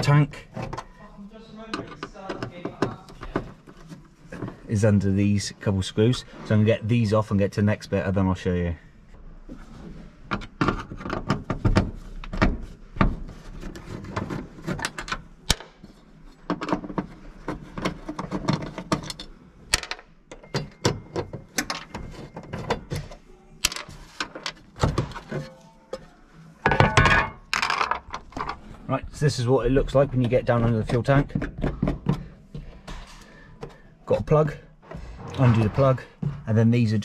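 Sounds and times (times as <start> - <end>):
metal cover scraping: 34.8 - 36.4.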